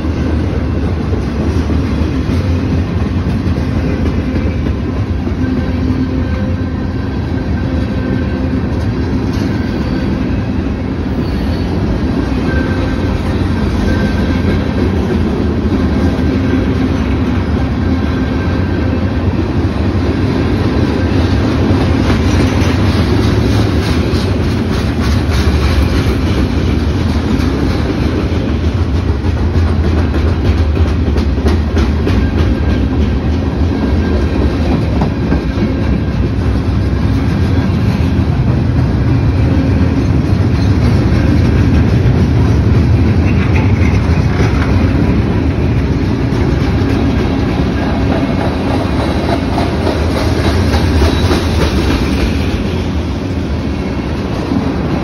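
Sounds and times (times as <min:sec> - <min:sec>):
freight train rumbling past: 0:00.0 - 0:55.0
wheels clicking over rail joints: 0:39.8 - 0:52.6.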